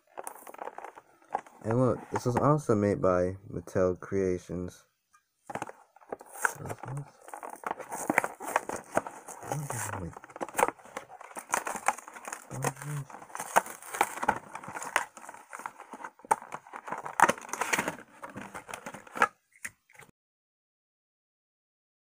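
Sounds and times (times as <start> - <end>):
plastic packaging crinkling: 0.0 - 2.4, 5.5 - 19.7.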